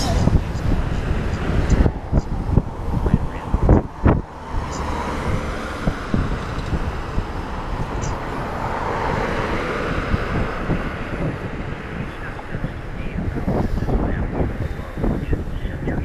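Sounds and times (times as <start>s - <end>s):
road and traffic noise: 0.0s - 16.0s
vehicle passing by: 0.0s - 16.0s
wind buffeting microphone: 0.0s - 16.0s.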